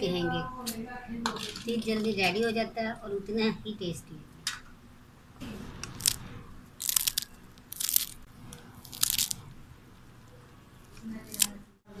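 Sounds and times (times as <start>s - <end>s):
fried chicken crunching: 6.8s - 8.2s, 8.8s - 9.4s.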